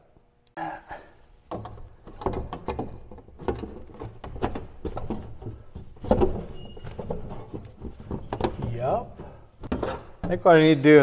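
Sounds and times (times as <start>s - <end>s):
metal knocking and scraping on metal: 1.5s - 10.6s.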